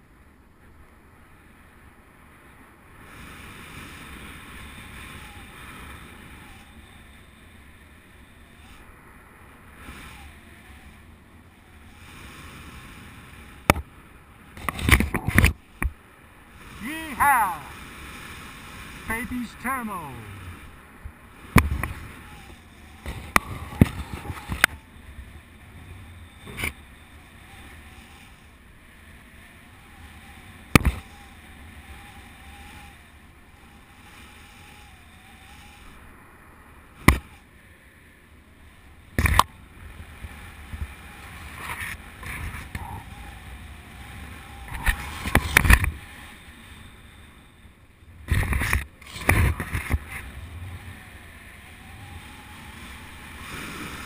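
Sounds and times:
wind rushing over microphone: 0:03.0 - 0:37.8, 0:38.6 - 0:54.0
faint wavering tone: 0:21.8 - 0:36.0, 0:49.8 - 0:54.0.

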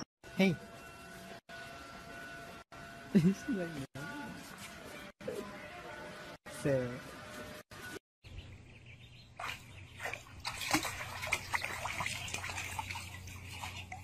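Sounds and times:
ducklings peeping: 0:08.3 - 0:10.2
water splashing: 0:09.4 - 0:14.0.

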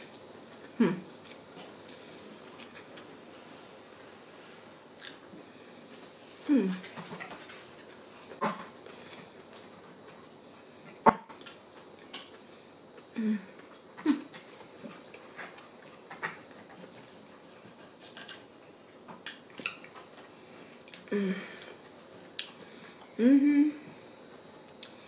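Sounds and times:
eating noises: 0:04.9 - 0:23.2.

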